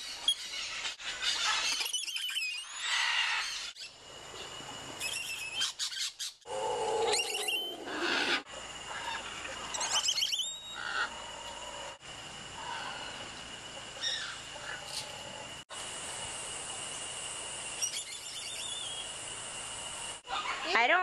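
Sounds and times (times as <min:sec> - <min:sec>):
spider monkeys whinnying: 0:06.5 - 0:11.2.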